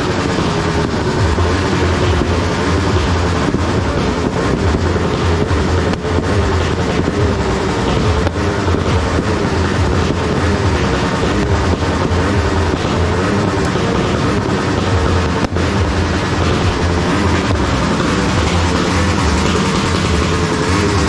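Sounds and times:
firecrackers and fireworks rumbling: 0.0 - 21.0
pops and crackles: 0.0 - 21.0.

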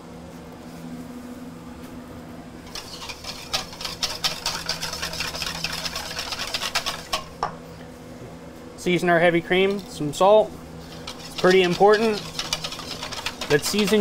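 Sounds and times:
low steady hum: 0.0 - 14.0
whisk rattling in metal bowl: 2.7 - 7.5, 9.5 - 10.0, 10.8 - 14.0.

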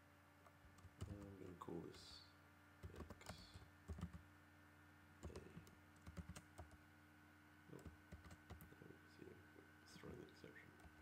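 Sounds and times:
faint steady hum: 0.0 - 11.0
keyboard keystrokes: 2.8 - 4.2, 5.2 - 6.8, 7.8 - 8.7.

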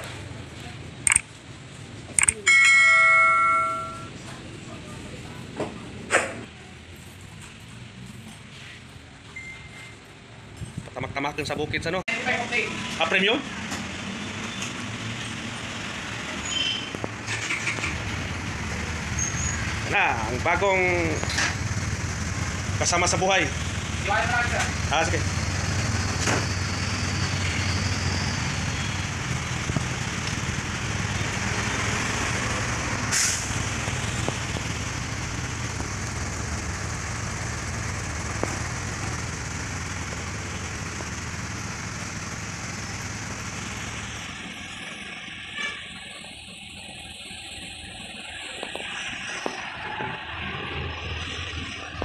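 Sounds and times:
short sharp hiss or click: 33.1 - 33.6.

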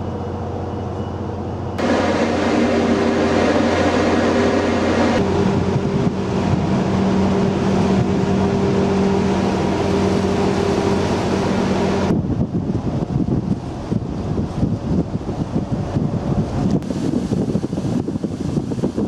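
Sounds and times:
ship engine humming: 0.0 - 17.4
wind buffeting microphone: 1.8 - 19.0.

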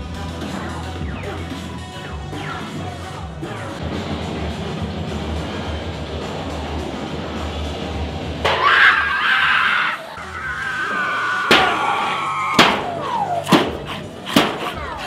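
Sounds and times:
person screaming: 8.6 - 13.4
sharp bangs: 11.4 - 14.8.

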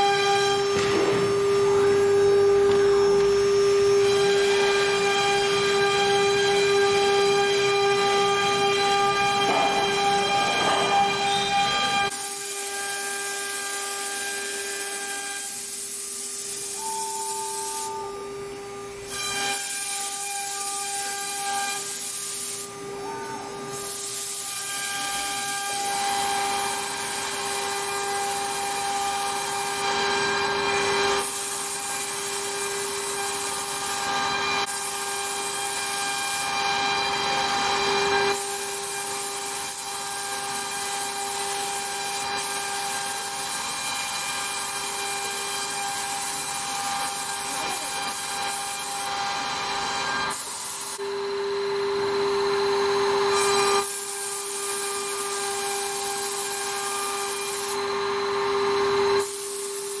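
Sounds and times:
router spindle whining: 0.0 - 12.2, 46.3 - 59.2
hiss of wood cutting: 0.0 - 51.3, 52.0 - 60.0.

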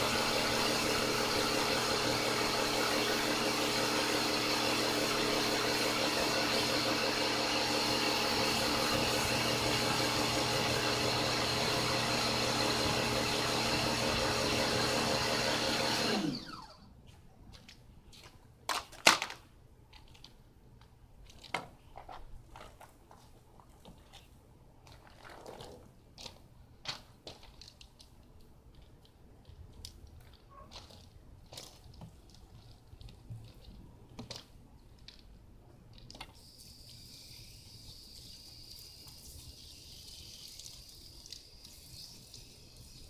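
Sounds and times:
pressure washer motor running: 0.0 - 16.8.

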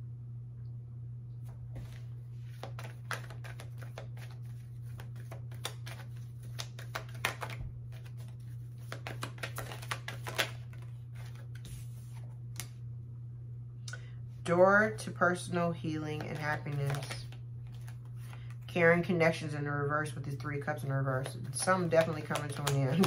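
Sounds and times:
steady low hum: 0.0 - 23.0
cards shuffled and flicked: 1.8 - 12.8, 16.1 - 18.6, 21.1 - 23.0.

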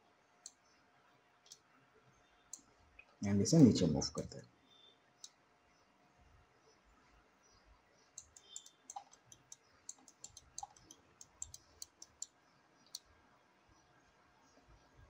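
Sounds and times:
mouse and keyboard clicks: 8.2 - 13.0.

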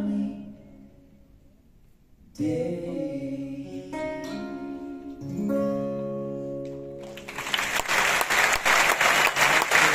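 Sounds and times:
audience applause: 7.0 - 9.9.

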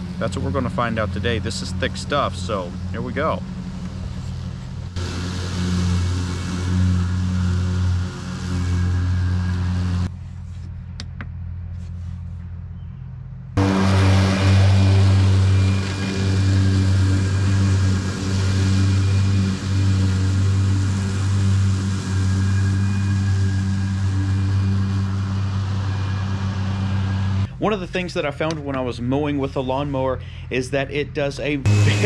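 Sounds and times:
electric mower motor hum: 0.0 - 10.1, 13.6 - 27.5, 31.6 - 32.0
grass cutting hiss: 3.8 - 10.1, 13.6 - 27.5, 31.7 - 32.0.

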